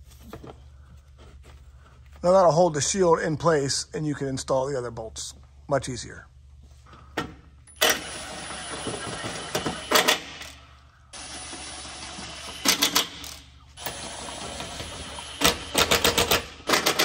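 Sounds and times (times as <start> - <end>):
impact wrench motor spinning: 7.8 - 10.6, 11.2 - 17.0
impact wrench hammering: 14.4 - 17.0.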